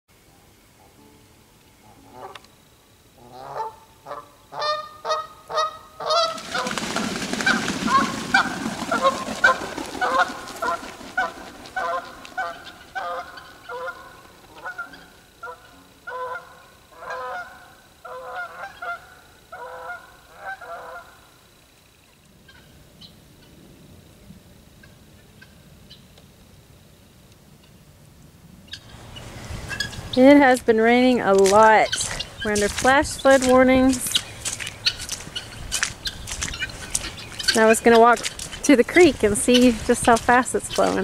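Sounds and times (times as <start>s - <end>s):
geese honking: 1.8s - 2.5s, 3.2s - 21.4s, 28.7s - 41.0s.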